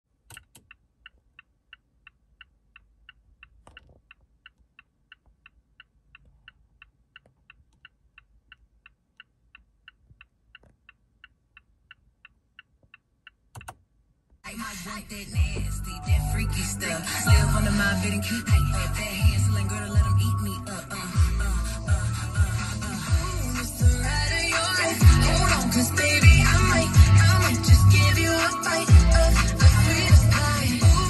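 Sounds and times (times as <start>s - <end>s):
blinker relay ticking: 0.2s - 13.8s.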